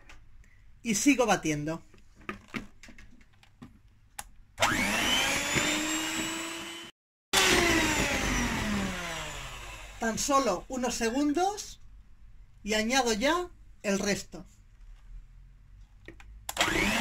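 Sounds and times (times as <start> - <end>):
electric hand mixer whining: 4.6 - 10.7, 16.6 - 17.0.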